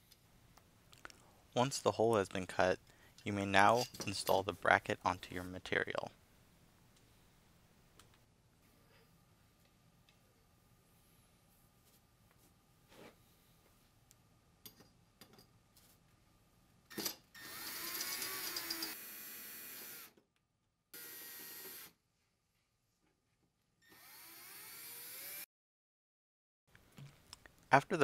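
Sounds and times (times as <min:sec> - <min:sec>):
cordless drill driving screws: 0:17.4 - 0:20.1, 0:21.0 - 0:21.9, 0:23.8 - 0:25.4.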